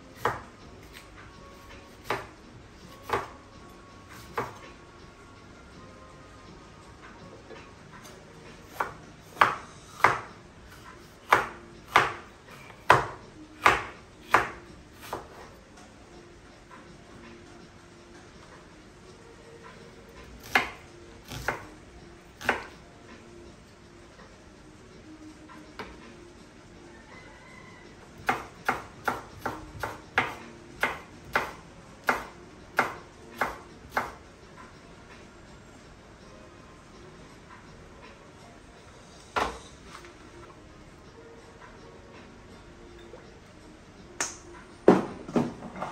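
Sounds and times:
knife chopping on cutting board: 0.2s - 1.0s, 2.0s - 2.3s, 3.0s - 3.3s, 4.2s - 4.6s, 8.7s - 10.3s, 11.2s - 15.4s, 20.4s - 21.7s, 22.4s - 22.7s, 28.2s - 34.2s.

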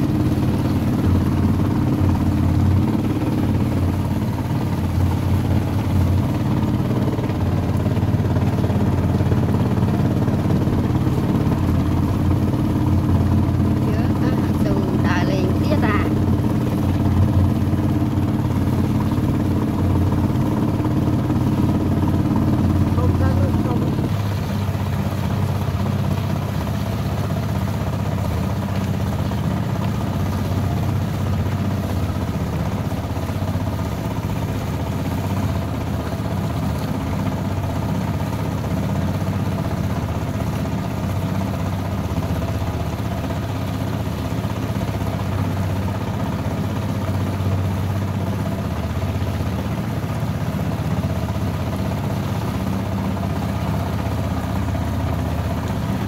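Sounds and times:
boat engine droning: 0.0s - 56.0s.

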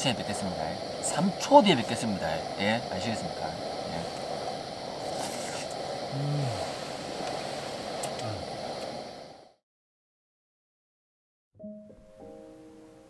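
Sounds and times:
fan heater rushing: 0.0s - 9.6s
man grunting: 6.1s - 6.6s.

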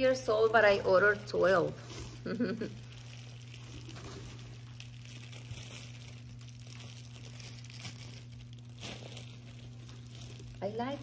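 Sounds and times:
cloth rustling and crinkling: 0.0s - 11.0s
steady low hum: 0.0s - 11.0s.

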